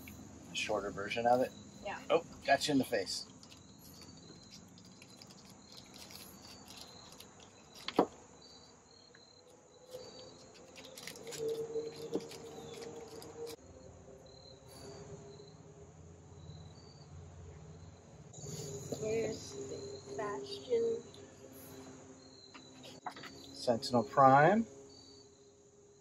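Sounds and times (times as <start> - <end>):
faint insect chirps: 0.0 - 26.0
plastic parts being handled: 3.2 - 8.2, 10.0 - 13.6.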